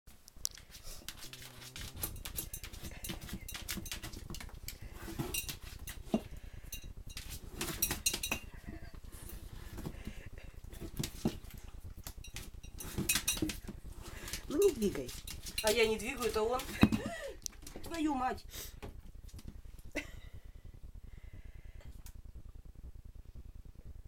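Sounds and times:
glass jar clinking on stone floor: 1.8 - 9.8, 12.2 - 13.7.

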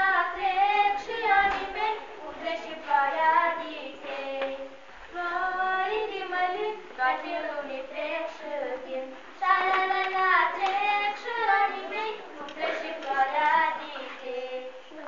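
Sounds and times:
girl singing unaccompanied: 0.0 - 15.0.

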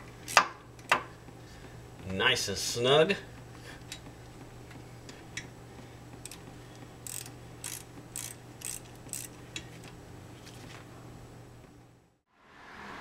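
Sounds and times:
steady low hum: 0.0 - 13.0
wrench clicking: 7.0 - 9.4.

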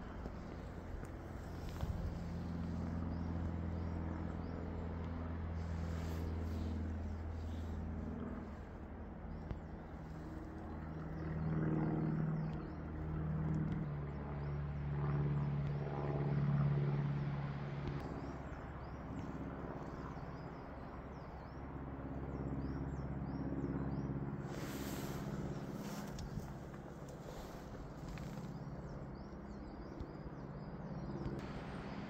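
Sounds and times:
low engine drone: 0.0 - 32.0.

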